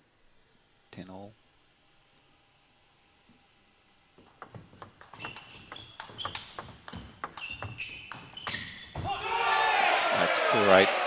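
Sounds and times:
table tennis ball clicking: 0:04.2 - 0:08.8.

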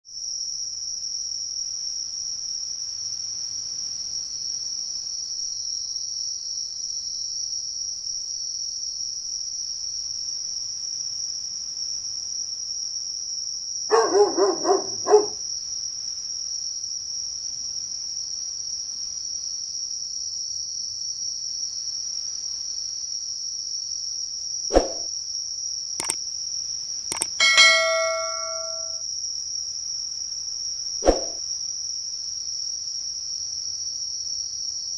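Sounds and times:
dog barking: 0:13.9 - 0:15.4, 0:27.4 - 0:28.9
sharp clicks: 0:26.0 - 0:26.2, 0:27.1 - 0:27.7
bell-like chime: 0:27.1 - 0:29.0.

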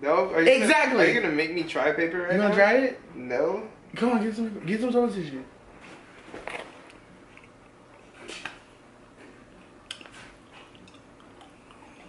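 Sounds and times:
person chewing paper towel: 0:06.4 - 0:12.0.

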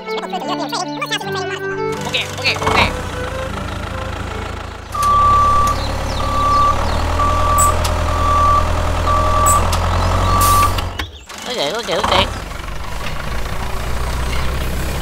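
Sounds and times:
engine rumble: 0:00.0 - 0:15.0
reversing alarm beeps: 0:05.0 - 0:10.8.

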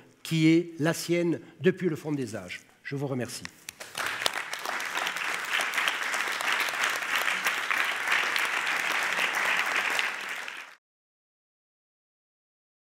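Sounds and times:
audience applauding: 0:03.8 - 0:10.8.

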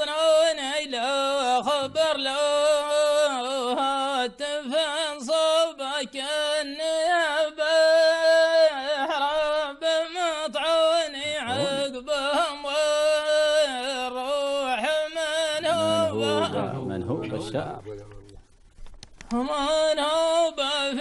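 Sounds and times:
man chanting: 0:00.0 - 0:18.4, 0:19.4 - 0:21.0.

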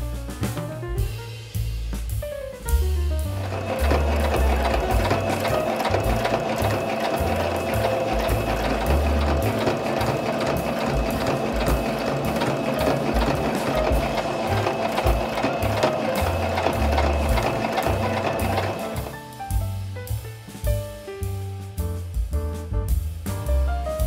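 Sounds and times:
sewing machine stitching: 0:03.3 - 0:19.2.

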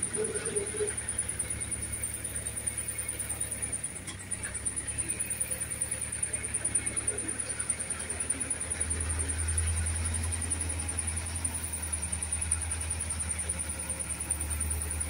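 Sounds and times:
diesel engine rumbling: 0:00.0 - 0:15.0.

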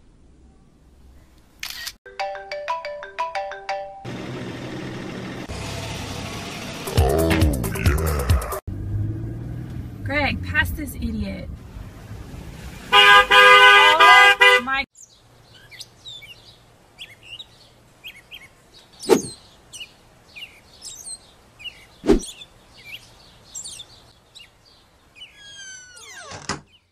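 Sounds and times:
car horn blaring: 0:12.9 - 0:14.9
birds chirping: 0:14.8 - 0:26.9.

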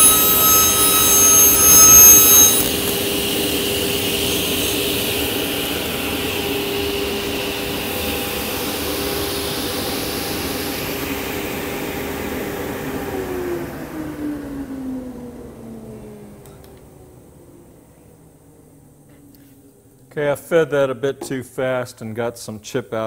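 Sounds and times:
table saw running and coasting down: 0:00.0 - 0:16.3.

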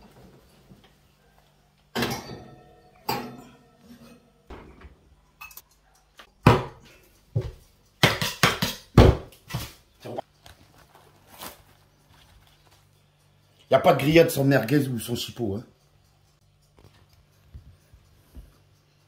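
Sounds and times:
glass dish clanking on oven rack: 0:01.9 - 0:05.6.

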